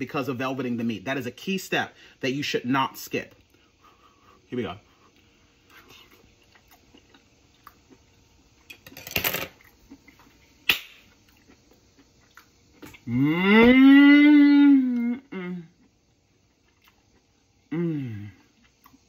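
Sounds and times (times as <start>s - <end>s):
man chewing: 3.4s - 8.8s, 9.5s - 13.4s, 14.9s - 19.0s
man saying mmm: 13.0s - 15.8s, 17.7s - 18.5s.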